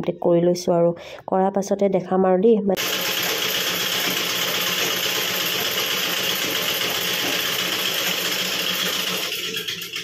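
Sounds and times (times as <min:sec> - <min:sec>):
sewing machine running: 0:02.8 - 0:10.0.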